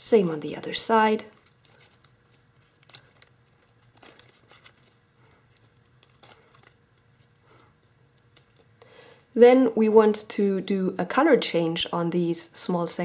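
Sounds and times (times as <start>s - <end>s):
foil paper crinkling: 0.6s - 9.0s.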